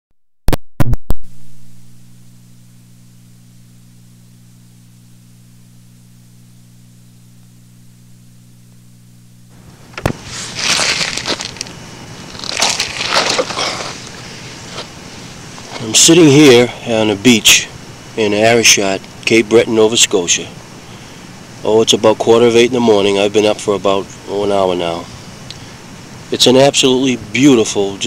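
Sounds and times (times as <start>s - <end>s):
low electrical hum: 1.2s - 28.0s
hissy rustling on microphone: 9.6s - 16.2s.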